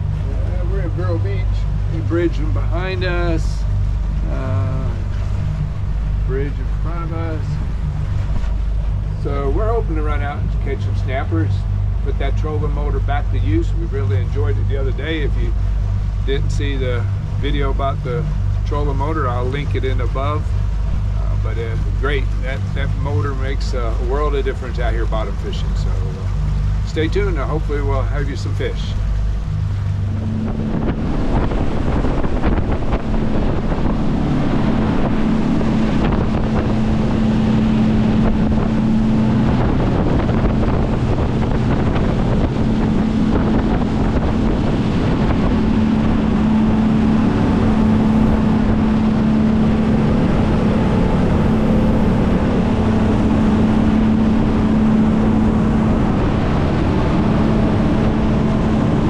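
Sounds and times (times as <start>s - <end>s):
outboard motors droning: 0.0s - 59.0s
wind and water rush: 0.0s - 59.0s.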